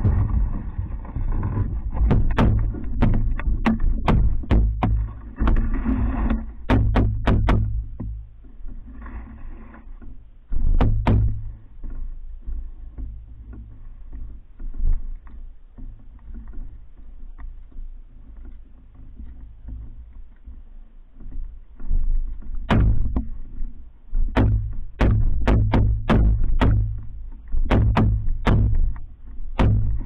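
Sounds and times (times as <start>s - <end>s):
sharp knocks: 0.0s - 8.2s, 10.5s - 11.6s, 22.4s - 23.4s, 24.2s - 30.0s
steady low rumble: 0.0s - 12.8s
paddle strokes: 0.0s - 30.0s
water moving against canoe hull: 0.0s - 30.0s.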